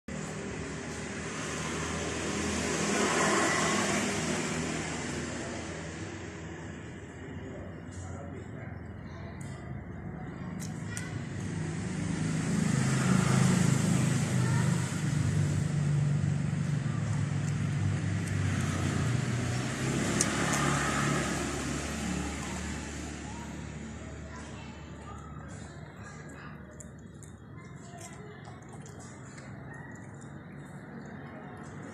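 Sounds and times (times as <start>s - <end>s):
vehicle engine passing: 0.1s - 8.8s, 9.8s - 31.9s.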